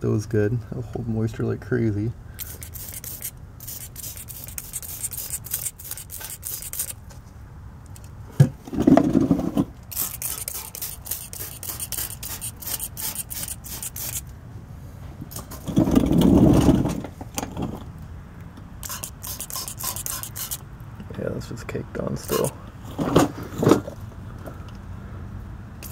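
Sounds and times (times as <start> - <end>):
spray bottle squirting: 2.4 - 7.0, 9.9 - 14.3, 18.8 - 20.6, 22.2 - 22.5.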